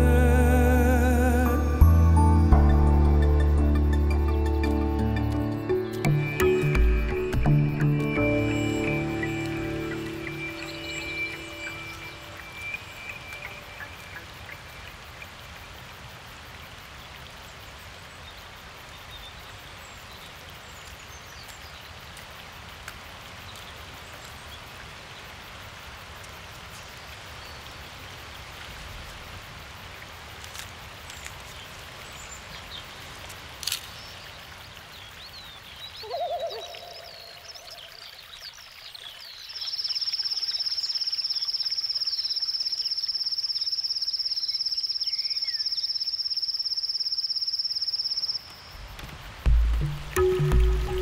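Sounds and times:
watery hiss of forest ambience: 0.0 - 51.0
faint bird chirps: 8.1 - 15.0, 35.3 - 48.8.

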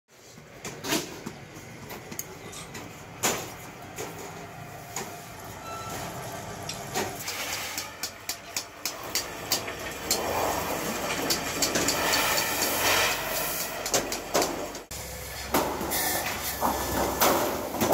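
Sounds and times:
iron sheet flexing rattle: 9.3 - 14.8.

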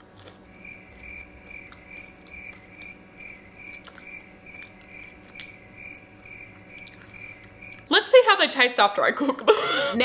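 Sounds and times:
cornflake being chewed: 0.0 - 7.9
cricket chirping: 0.6 - 7.8.

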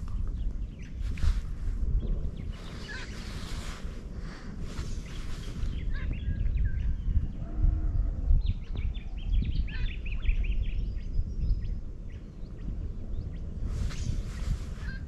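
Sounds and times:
small birds chirping: 0.0 - 7.6, 8.2 - 15.0
steady low rumble: 0.0 - 15.0
low-pitched bird call: 2.4 - 3.9.

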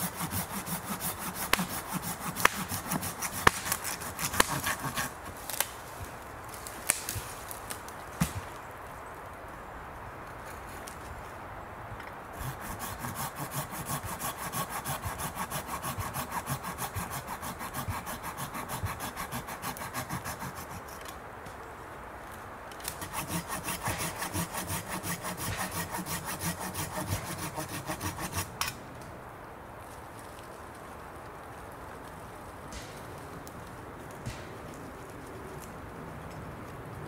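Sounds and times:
saw cutting through branch: 0.0 - 5.8, 12.4 - 21.1, 22.8 - 28.8.

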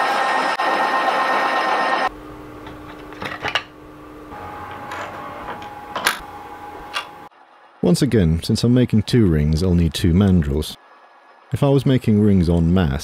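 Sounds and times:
metal lathe machining whir: 0.0 - 2.7
quiet steady hum: 2.1 - 13.0.

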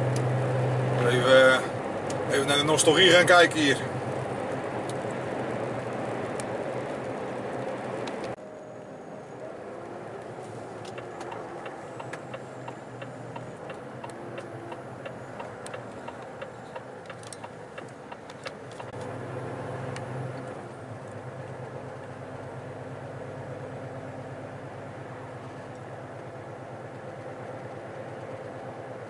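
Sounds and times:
diesel engine humming: 0.0 - 29.0
turn indicator ticking: 10.8 - 19.1.

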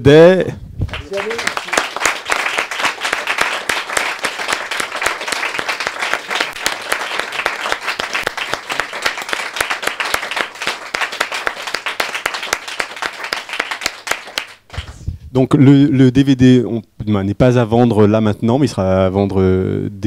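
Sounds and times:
audience applauding: 0.9 - 15.0.

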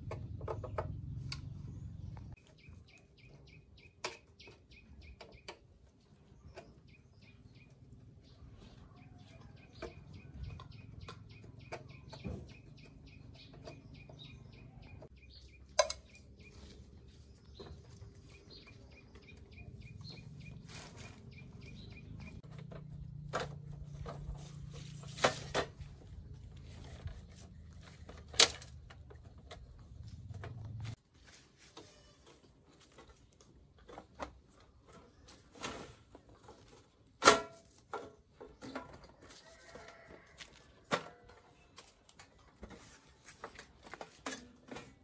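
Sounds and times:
bird chirping: 0.5 - 22.6.

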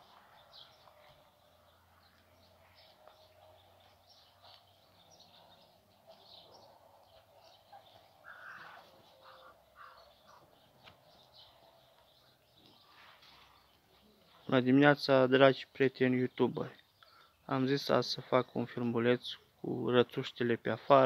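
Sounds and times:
lower bird calls: 0.0 - 14.2.

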